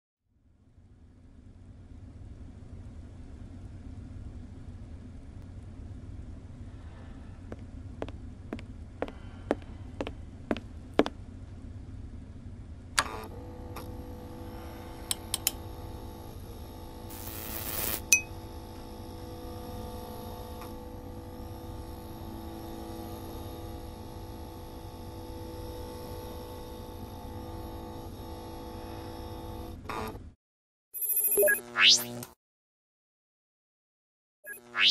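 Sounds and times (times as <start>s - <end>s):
steady electrical hum: 4.8s - 24.3s
sharp electrical clicks: 17.1s - 18.1s
electrical hissing: 17.1s - 18.2s.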